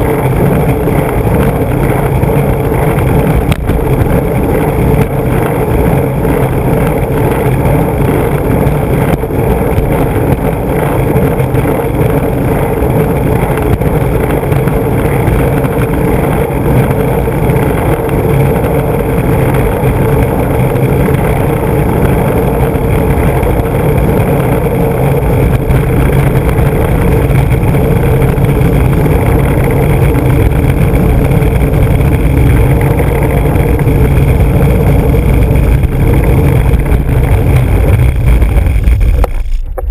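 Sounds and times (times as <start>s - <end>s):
skateboard wheels rolling on asphalt: 0.0s - 39.9s.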